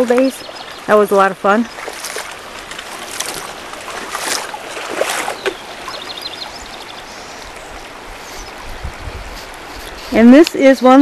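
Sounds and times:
water rushing over rocks: 0.0 - 11.0
brief splashes: 1.8 - 6.2.

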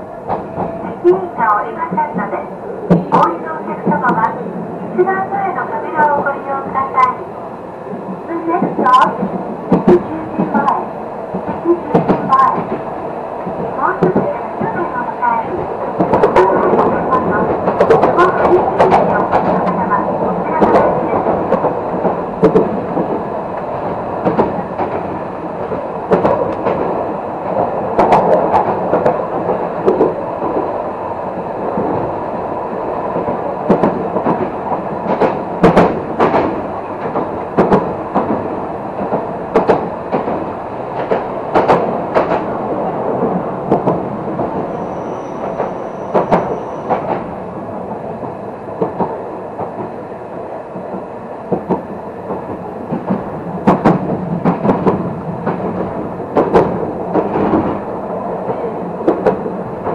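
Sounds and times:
tram rolling rumble: 0.0 - 59.9
wheel clacks over rail joints: 16.0 - 30.7, 33.2 - 42.6
high wheel squeal: 44.7 - 46.9.

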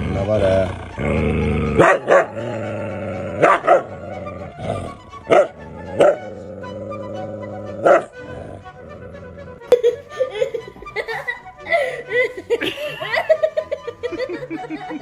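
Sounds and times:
background music: 0.0 - 15.0
dog barking: 1.8 - 2.4, 3.4 - 3.9, 5.3 - 6.2, 7.8 - 8.1.

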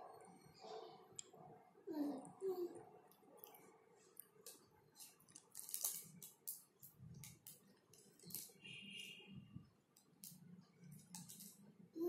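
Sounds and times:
foil snack packet crinkling: 5.0 - 6.6.

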